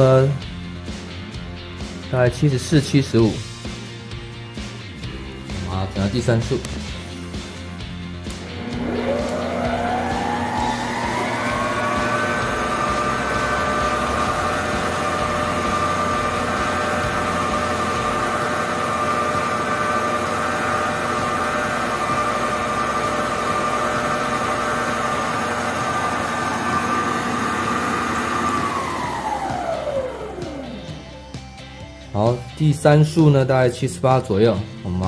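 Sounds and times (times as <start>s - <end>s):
stand mixer motor whining: 8.2s - 31.3s.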